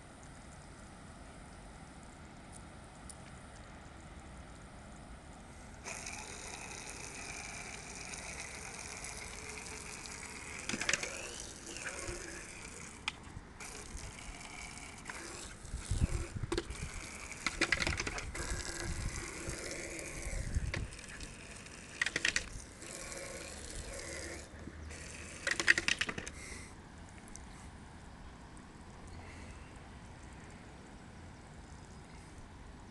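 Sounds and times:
hose spray gun hissing: 5.8 - 26.6
water clattering and spattering: 5.9 - 26.3.

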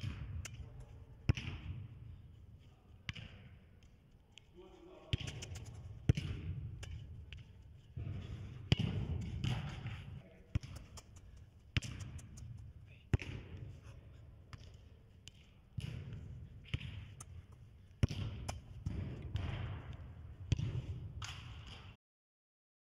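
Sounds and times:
football kicked thuds: 1.2 - 1.8, 5.1 - 6.7, 8.0 - 11.1, 11.8 - 13.6, 18.0 - 19.9, 20.5 - 21.1.

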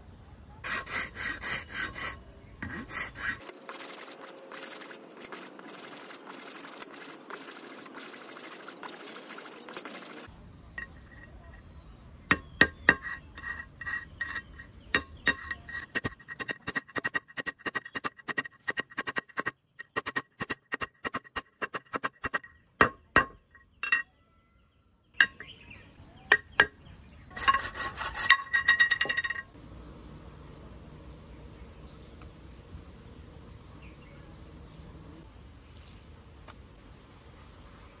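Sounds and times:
small hard parts clicking: 3.4 - 11.1.

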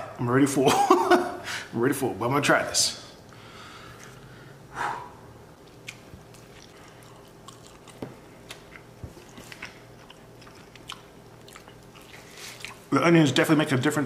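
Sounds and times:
chewing with wet clicks: 5.6 - 12.9.

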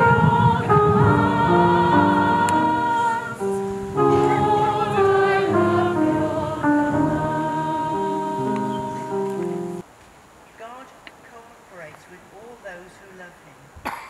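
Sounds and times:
group singing: 0.0 - 9.8
solo voice singing: 0.0 - 9.8.

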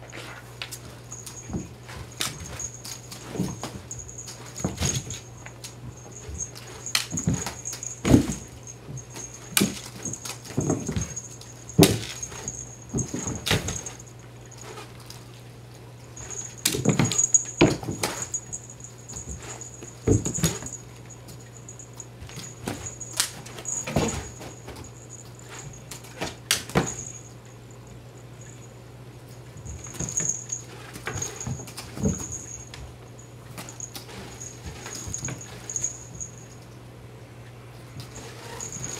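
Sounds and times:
cats thumping on carpet: 1.1 - 14.0, 16.2 - 20.8, 21.6 - 27.2, 29.6 - 32.9, 33.6 - 36.3.

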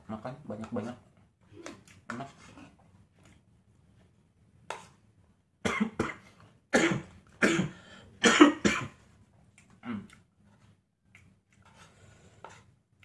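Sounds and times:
man coughing harshly: 5.6 - 9.0.

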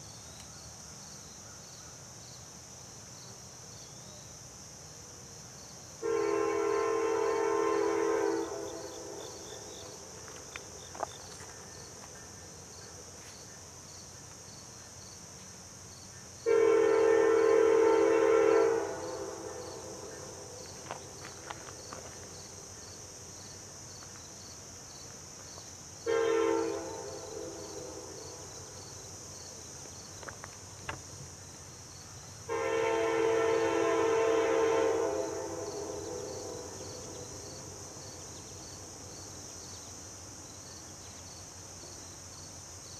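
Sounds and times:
insects droning: 0.0 - 42.9
locomotive air horn blasts: 6.0 - 9.3, 16.4 - 20.2, 26.0 - 28.1, 32.5 - 37.1.

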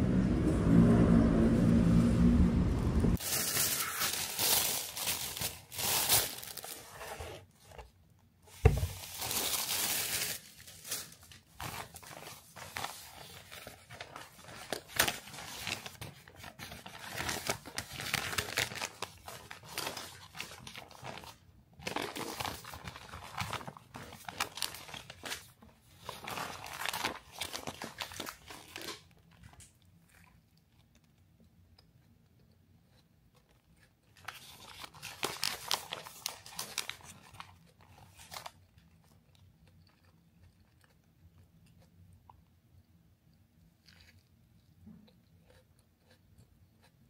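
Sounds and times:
packaging crinkling and tearing: 3.2 - 7.2, 8.5 - 29.8, 34.1 - 40.0.

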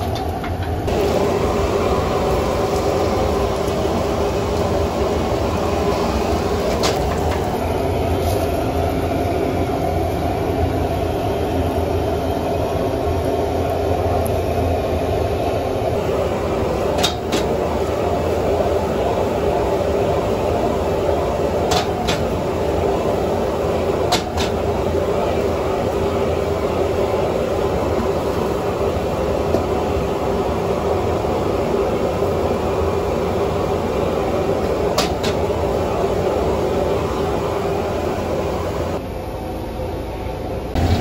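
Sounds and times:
gas burner rushing: 0.0 - 39.0, 40.7 - 41.0.

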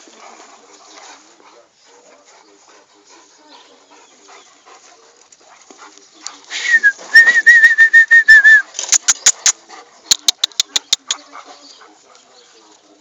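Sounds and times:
sharp clicks: 8.8 - 11.2.

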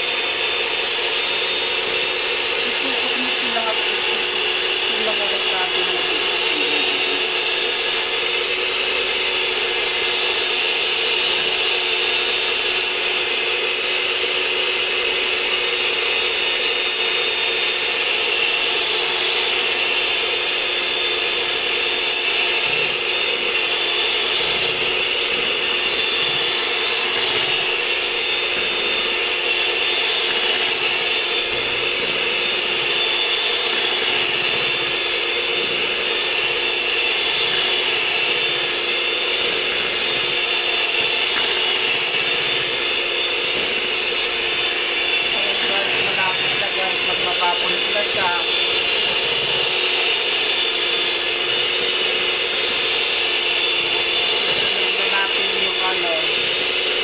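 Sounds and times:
electric hand mixer whipping cream: 0.0 - 57.0.

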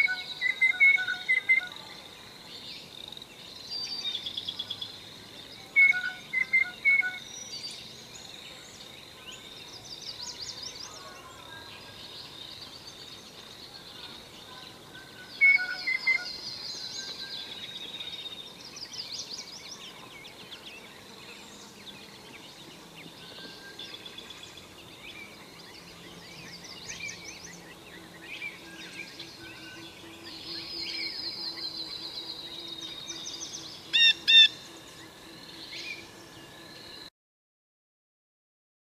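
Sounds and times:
birds chirping and trilling: 0.0 - 37.1
blue jay calling: 33.9 - 34.6.

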